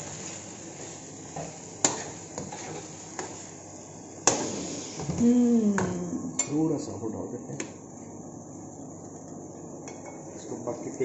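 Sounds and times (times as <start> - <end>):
frying sizzle: 0.0 - 6.9.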